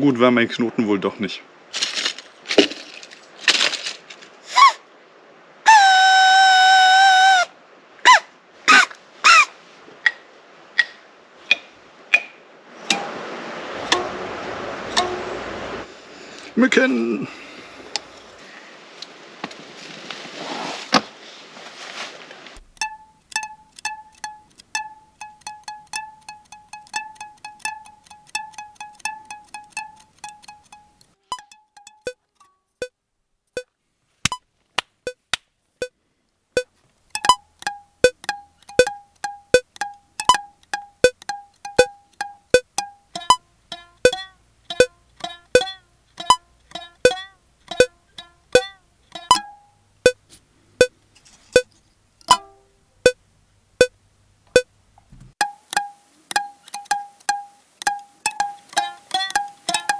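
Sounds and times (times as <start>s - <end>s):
clicky plucked string notes: 13.8s - 15.4s, 22.6s - 32.2s, 37.1s - 49.7s, 52.2s - 52.7s, 55.4s - 59.9s.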